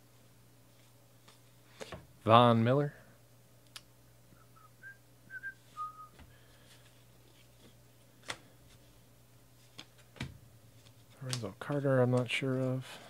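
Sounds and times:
person whistling: 0:04.4 - 0:06.2.

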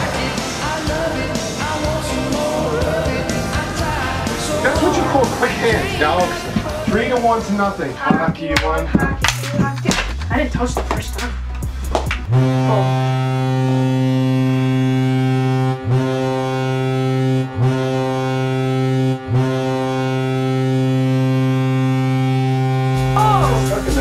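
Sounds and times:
low goal horn blasts: 0:12.3 - 0:23.9.

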